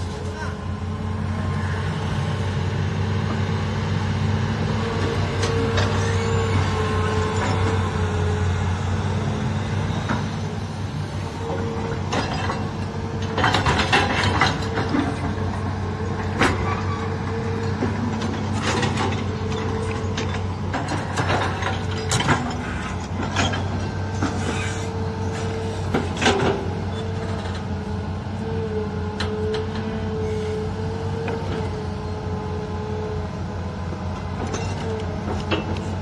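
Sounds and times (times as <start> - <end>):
diesel engine under load: 0.0 - 36.0
hydraulic whine: 16.2 - 27.7.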